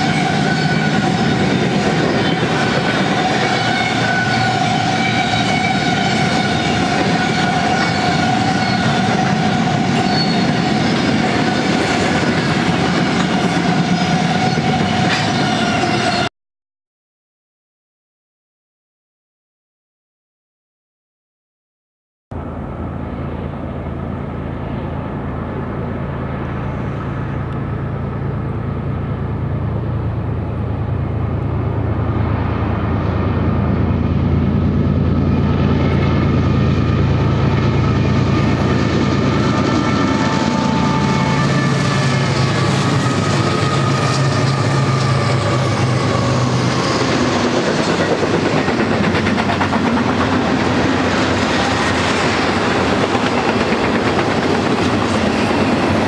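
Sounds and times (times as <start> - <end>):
train wheels clattering on rails: 0.0 - 16.2, 35.0 - 56.0
diesel locomotive engine drone: 0.0 - 16.3, 22.3 - 56.0.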